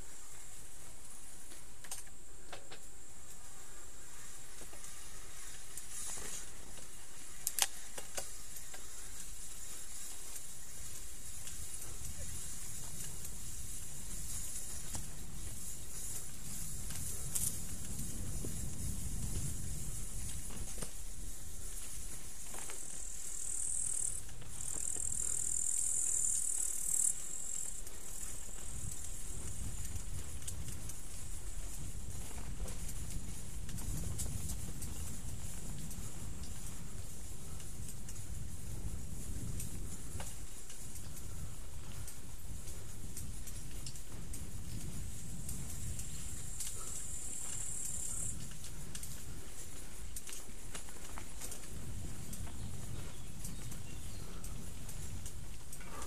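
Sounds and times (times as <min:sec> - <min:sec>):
insects buzzing: 0:00.0 - 0:56.0.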